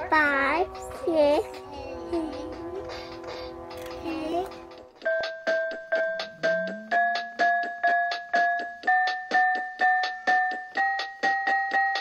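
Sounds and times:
electric piano repeated note: 0:06.2 - 0:07.3.

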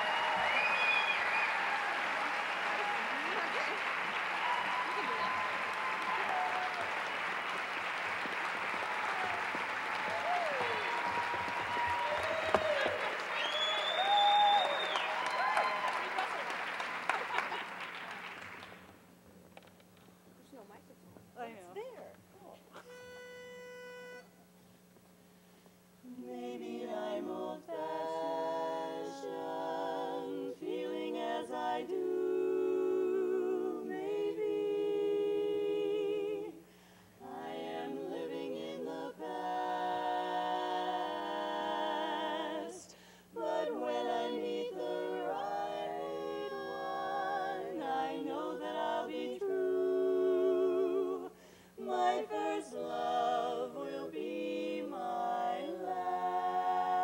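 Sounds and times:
women singing a cappella harmony: 0:26.0 - 0:57.0
singers breathing: 0:36.6 - 0:37.2, 0:42.9 - 0:43.4, 0:51.3 - 0:51.8.

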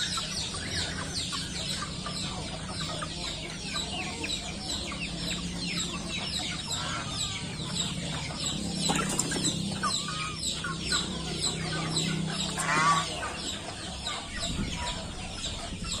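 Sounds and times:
chicks peeping and clucking: 0:00.0 - 0:16.0.

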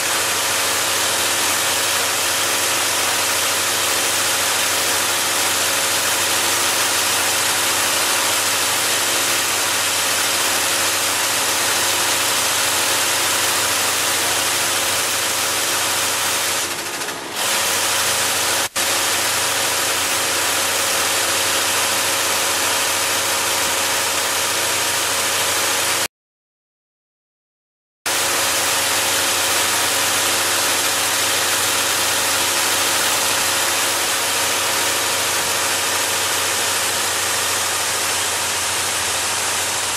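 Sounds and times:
welding machine humming: 0:00.0 - 0:26.1, 0:28.1 - 0:39.9
sharp machine click: 0:16.5 - 0:17.9.

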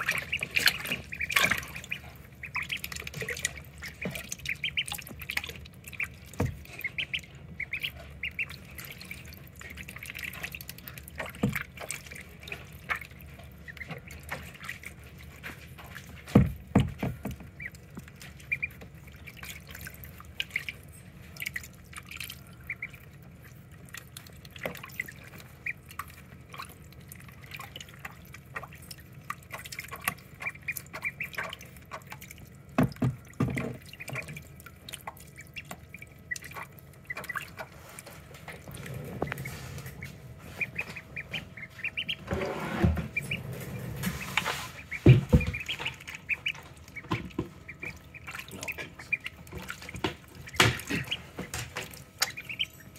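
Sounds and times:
ducklings peeping: 0:00.0 - 0:52.9
splashing in shallow water: 0:44.0 - 0:52.8.

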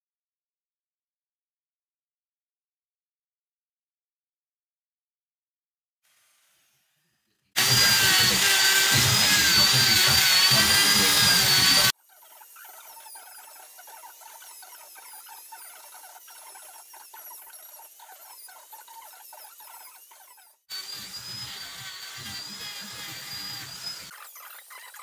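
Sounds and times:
die grinder grinding wood: 0:06.1 - 0:25.0
electric chainsaw cutting wood: 0:06.1 - 0:25.0.

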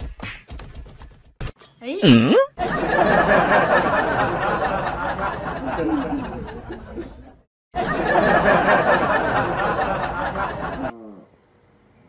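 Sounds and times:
crowd chattering and laughing: 0:02.6 - 0:10.9.

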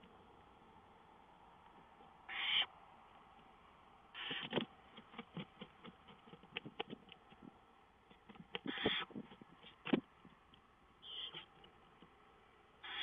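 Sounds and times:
owl raspy hisses: 0:02.3 - 0:02.7, 0:08.7 - 0:09.1
scratching and shuffling clicks: 0:04.4 - 0:10.6.

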